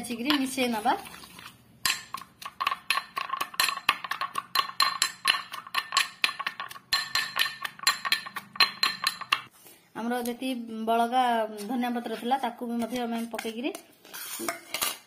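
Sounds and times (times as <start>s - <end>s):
pestle clinking in metal mortar: 1.8s - 9.5s.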